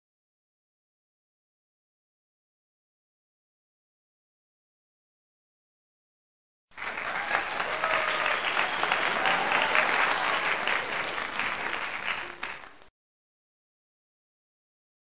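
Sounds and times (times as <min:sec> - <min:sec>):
crowd applauding: 0:06.7 - 0:12.9.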